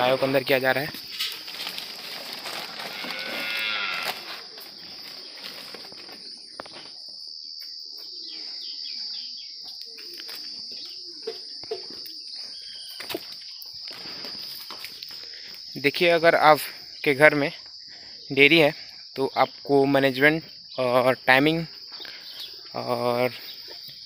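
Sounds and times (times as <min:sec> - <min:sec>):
cows mooing: 0:02.7 - 0:04.3.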